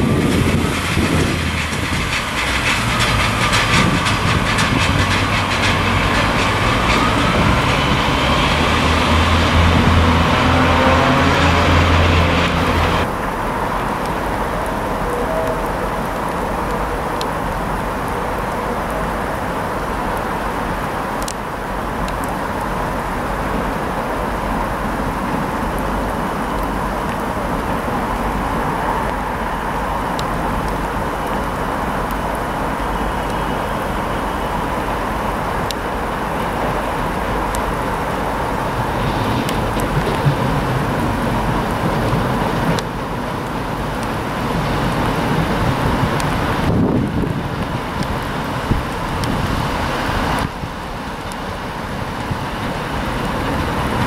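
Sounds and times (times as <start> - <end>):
railway and traffic rumble: 0.0 - 54.0.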